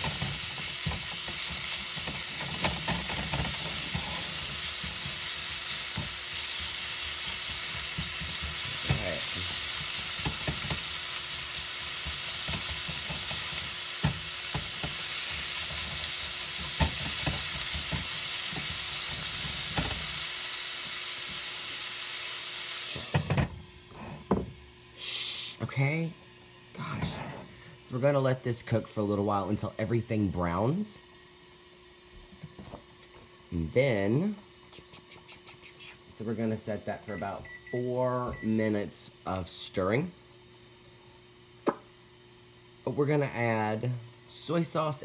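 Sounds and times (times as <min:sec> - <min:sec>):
spatula knocking and scraping pan: 0:00.0 - 0:20.1
meat sizzling in a skillet: 0:00.0 - 0:23.4.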